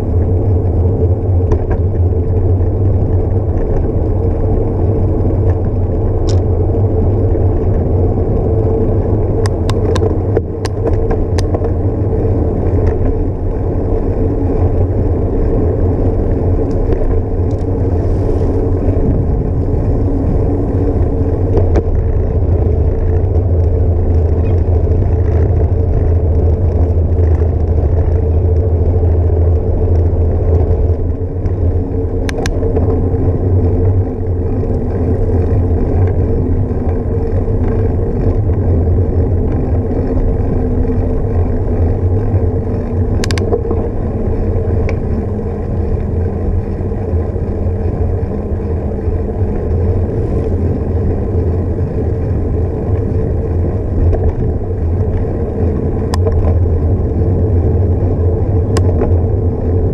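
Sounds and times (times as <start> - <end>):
bike rolling rumble: 0.0 - 59.9
wind rushing on microphone: 0.0 - 59.9.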